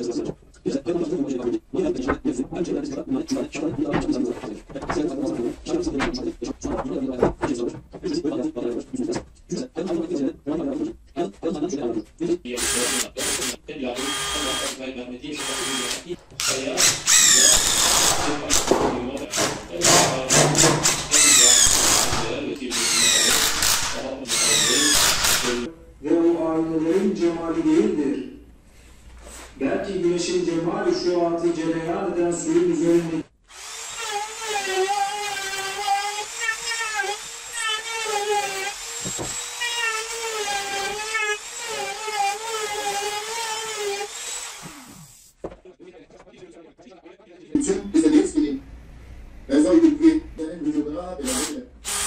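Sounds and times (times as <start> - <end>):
cordless drill driving screws: 12.6 - 14.8, 15.4 - 18.7, 20.8 - 25.7, 33.5 - 45.2, 51.3 - 52.0
router whining through wood: 12.6 - 14.8, 15.4 - 18.7, 19.3 - 25.7, 33.5 - 45.3.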